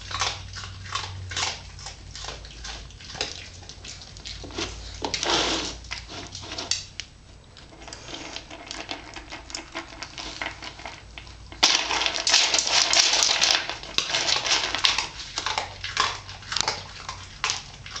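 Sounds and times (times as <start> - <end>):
kibble rattling in plastic bowl: 8.1 - 15.7.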